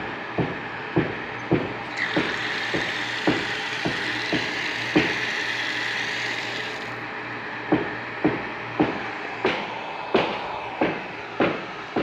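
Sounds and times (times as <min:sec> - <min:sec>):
electric water pump running: 0:00.0 - 0:07.7, 0:08.4 - 0:12.0
water spurting from a valve: 0:01.8 - 0:07.0.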